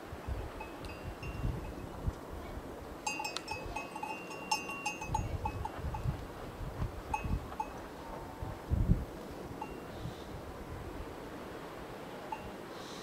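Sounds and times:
cattle bells clinking: 0.6s - 1.5s, 3.0s - 6.1s, 7.1s - 7.8s, 9.6s - 9.9s.

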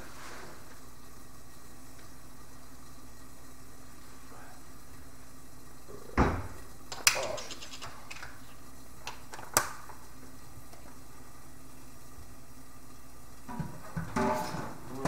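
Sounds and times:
objects clicking and rattling: 6.9s - 8.4s.

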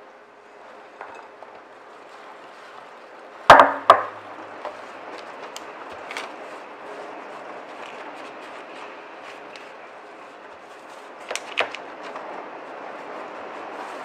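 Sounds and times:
sharp knocks: 3.5s - 4.2s.

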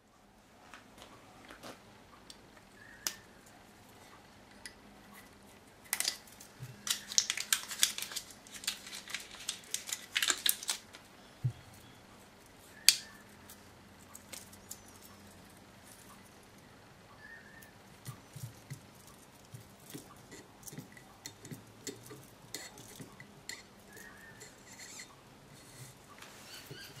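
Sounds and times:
foil capsule tearing and scratching: 6.8s - 11.0s.

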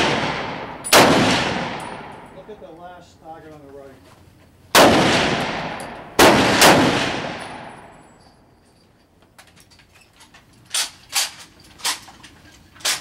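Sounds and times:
rifle shots with echo: 0.0s - 2.4s, 4.7s - 8.0s.

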